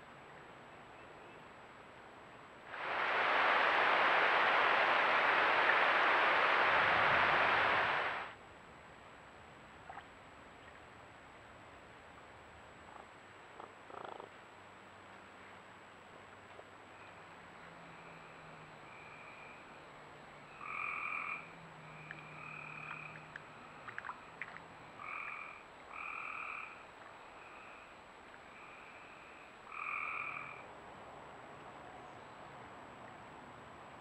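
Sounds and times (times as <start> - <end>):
frogs calling: 13.6 - 14.3, 20.5 - 27.9, 28.5 - 30.7.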